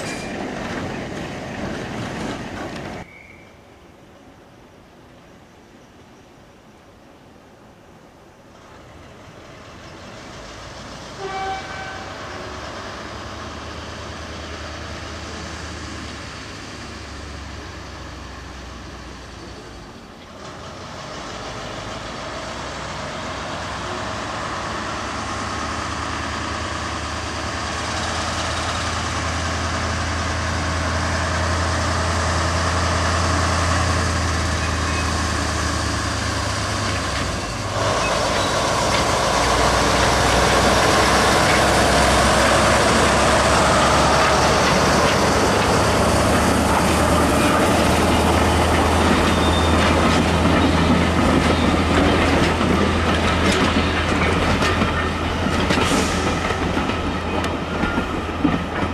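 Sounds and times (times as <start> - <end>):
diesel locomotive engine: 0.0 - 5.8, 6.6 - 58.9
train horn toot: 11.1 - 12.6.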